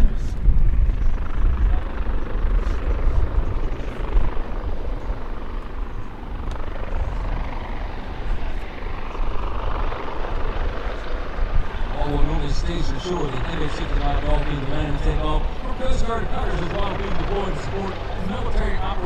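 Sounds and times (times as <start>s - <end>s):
helicopter rotor and engines: 0.0s - 19.0s.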